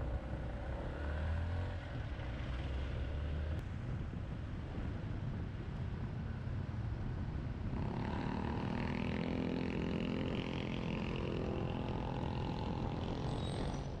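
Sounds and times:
wind and road noise: 0.0s - 14.0s
motorcycle engine: 7.7s - 14.0s.

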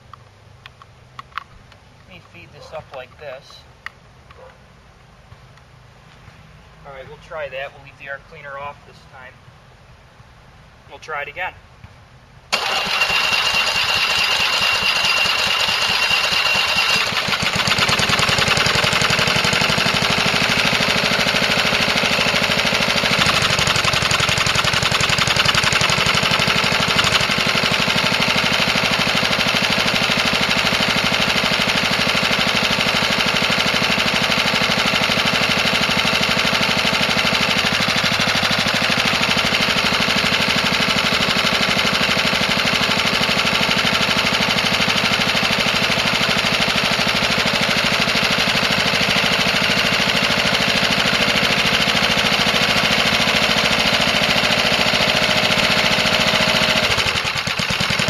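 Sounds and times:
lawn mower engine running: 12.5s - 58.0s.

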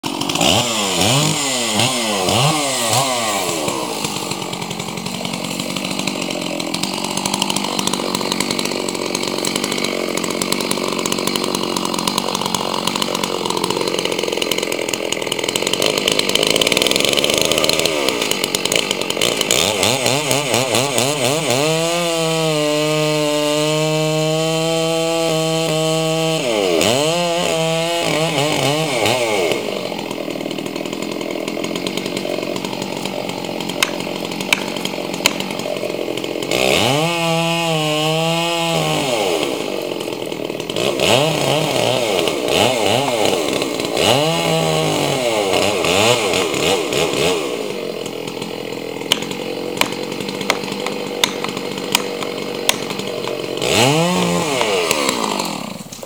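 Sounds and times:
chainsaw cutting wood: 0.0s - 56.0s.

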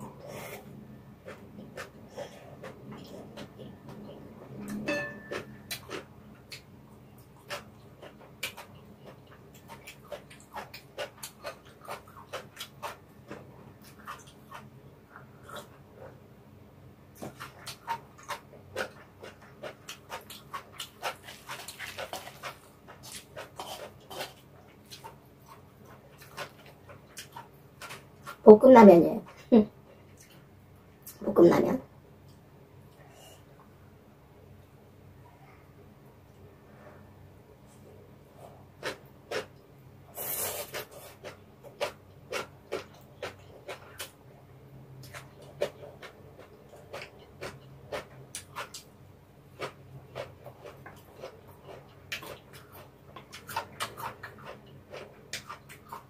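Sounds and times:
wet chewing clicks: 49.6s - 56.0s.

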